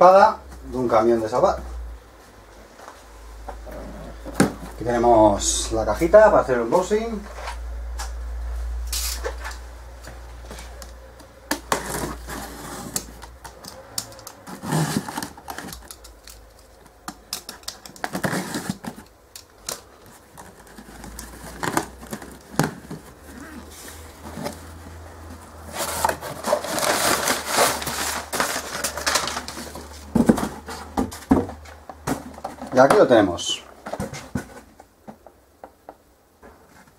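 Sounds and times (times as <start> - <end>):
paper and cardboard rustling: 10.4 - 35.0
cardboard knocks and scrapes: 11.5 - 13.6, 14.3 - 15.8, 20.2 - 32.8.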